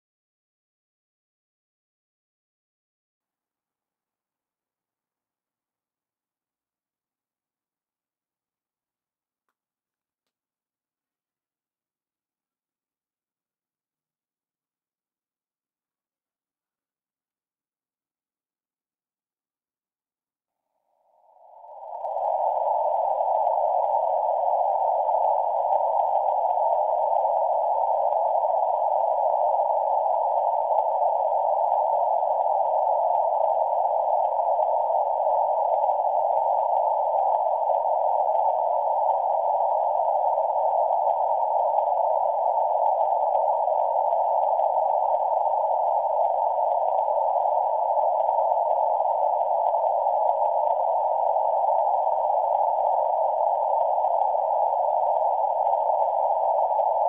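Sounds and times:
static hiss: 0:21.6 - 0:57.0.

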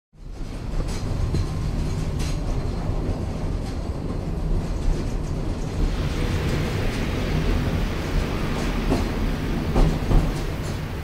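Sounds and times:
rail clicks: 0:00.2 - 0:11.0
train rumbling on track: 0:00.2 - 0:11.0.

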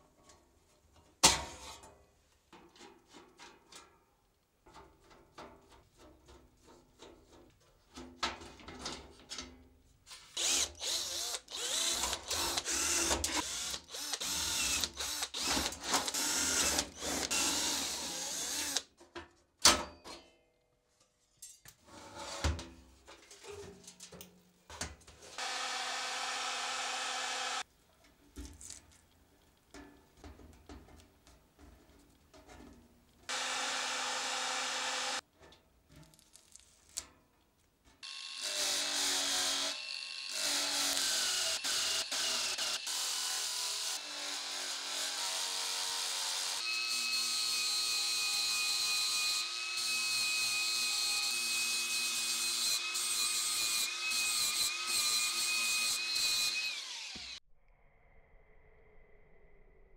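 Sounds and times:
cordless drill boring into metal: 0:10.3 - 0:18.9, 0:25.4 - 0:27.6, 0:33.3 - 0:35.2, 0:38.0 - 0:57.4.

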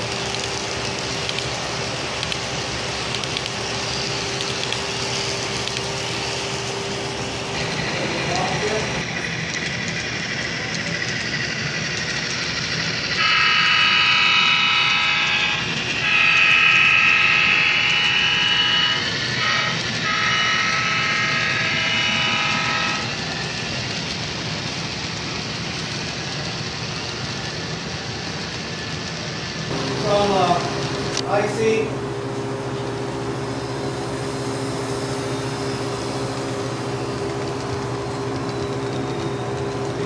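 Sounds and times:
rumble of model train running: 0:00.0 - 0:40.0
model train chime horn: 0:13.2 - 0:23.2.

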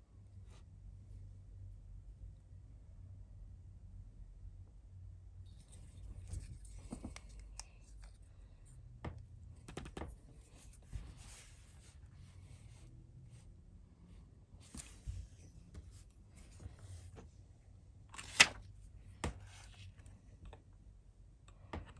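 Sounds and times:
pen handling clicks and taps: 0:06.2 - 0:08.2, 0:09.6 - 0:10.2.

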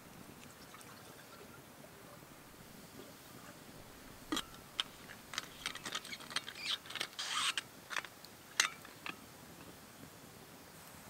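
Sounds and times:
scraping rustle: 0:03.3 - 0:09.2.

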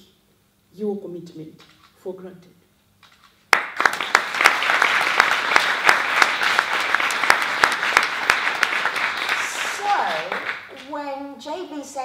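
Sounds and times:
audience applauding: 0:03.5 - 0:10.9.

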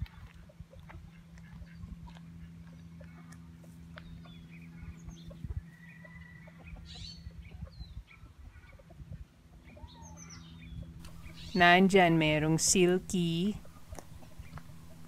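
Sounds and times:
chickens clucking: 0:00.0 - 0:11.6, 0:13.5 - 0:15.0
steady low hum: 0:00.0 - 0:15.0
small birds chirping: 0:01.4 - 0:06.0, 0:09.6 - 0:15.0.

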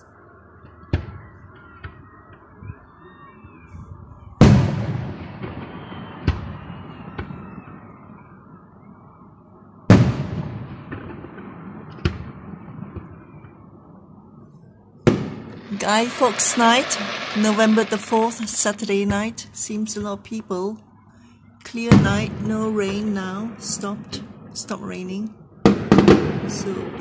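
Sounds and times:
firework booms with rumble: 0:04.4 - 0:07.4, 0:09.9 - 0:13.4, 0:15.1 - 0:18.1, 0:25.6 - 0:27.0
firework shells bursting: 0:15.1 - 0:19.3.

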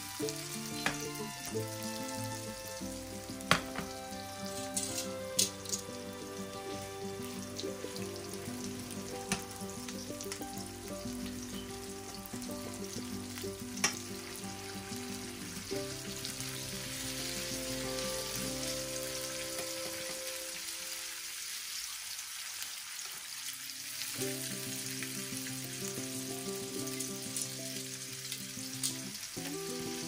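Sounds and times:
fish sizzling in hot oil: 0:00.0 - 0:30.0
metal tongs clicking on pan: 0:04.6 - 0:05.8.

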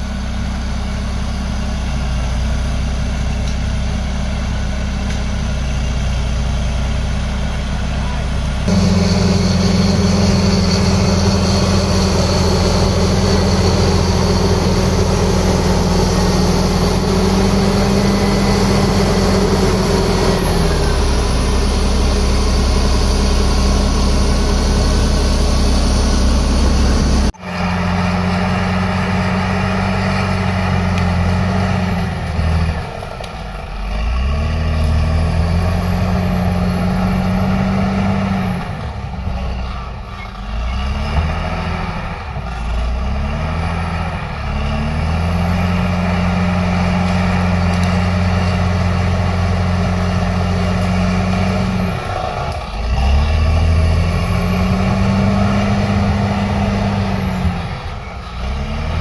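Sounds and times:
bulldozer diesel engine running: 0:00.0 - 0:59.0.

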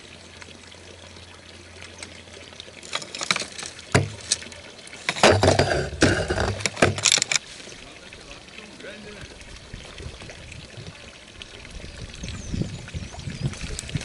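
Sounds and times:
fish thrashing in water: 0:01.8 - 0:07.4
landing net knocks: 0:03.0 - 0:04.4, 0:05.1 - 0:07.3.

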